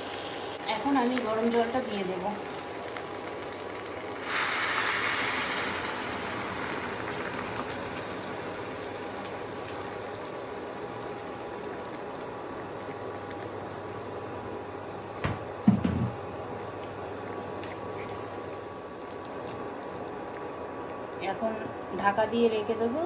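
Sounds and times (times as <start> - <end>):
hot water hissing in a pan: 0.0 - 14.0
water pouring and sizzling: 0.0 - 15.0, 16.8 - 21.4.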